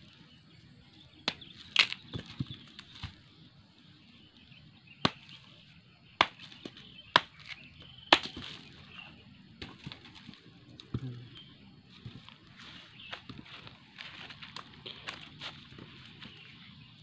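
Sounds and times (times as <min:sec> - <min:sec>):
machete chopping roots: 0:01.2 - 0:03.2, 0:05.0 - 0:05.5, 0:06.2 - 0:11.2.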